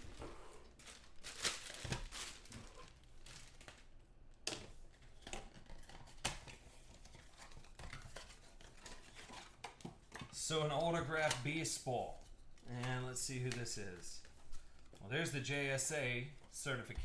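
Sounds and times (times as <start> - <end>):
packaging crinkling and tearing: 0.0 - 4.0.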